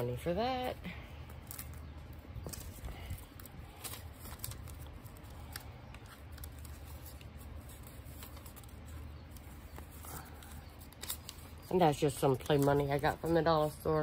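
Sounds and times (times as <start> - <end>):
paper bills rustling and flicking: 0.0 - 14.0
crisp paper snaps: 1.4 - 11.7.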